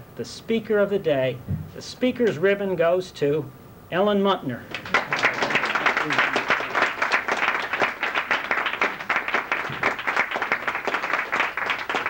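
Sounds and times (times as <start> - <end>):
group applauding: 4.7 - 12.0.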